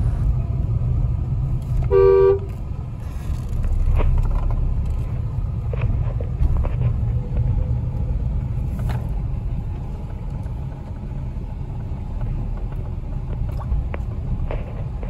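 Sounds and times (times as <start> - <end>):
car engine rumble inside cabin: 0.0 - 15.0.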